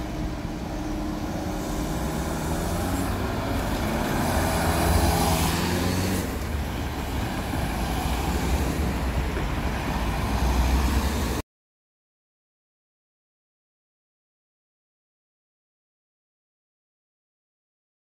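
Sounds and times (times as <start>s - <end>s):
vehicles passing: 0.0s - 11.4s.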